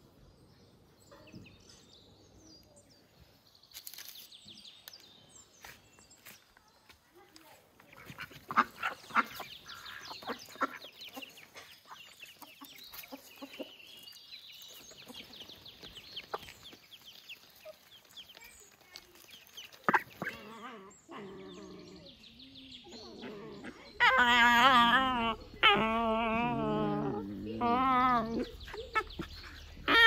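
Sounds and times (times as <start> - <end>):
chickens clucking: 7.8 - 21.2, 23.0 - 30.0.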